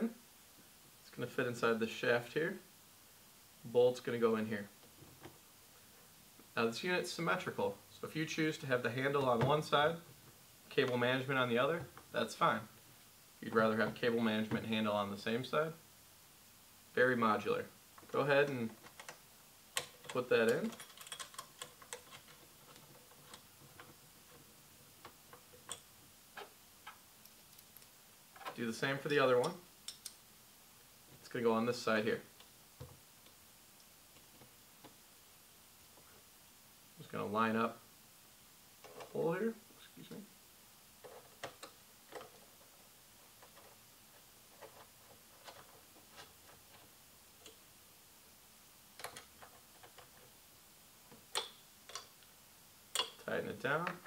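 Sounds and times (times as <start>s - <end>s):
small metal clicks of bolt: 19.8s - 22.3s, 51.3s - 52.1s, 52.9s - 53.2s.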